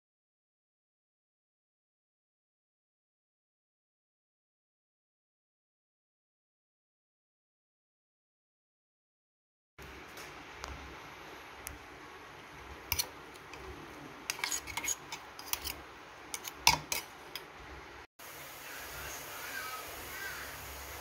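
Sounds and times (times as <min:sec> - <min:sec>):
spoon scraping in metal jar: 0:12.9 - 0:17.5
seeds sizzling in hot oil: 0:18.2 - 0:21.0.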